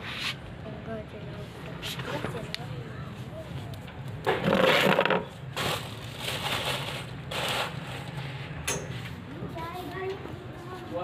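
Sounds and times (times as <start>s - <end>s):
grill fire crackling: 3.5s - 8.6s.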